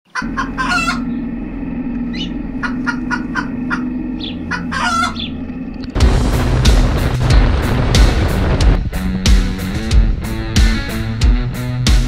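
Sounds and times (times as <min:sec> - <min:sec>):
chickens clucking: 0:00.1 - 0:01.3, 0:02.0 - 0:05.5
chickens cackling: 0:00.1 - 0:05.7
steady low hum: 0:00.2 - 0:08.9.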